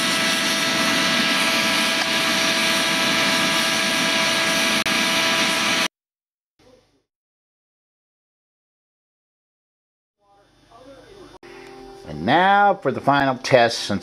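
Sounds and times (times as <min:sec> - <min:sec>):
electric blower roaring: 0:00.0 - 0:05.9.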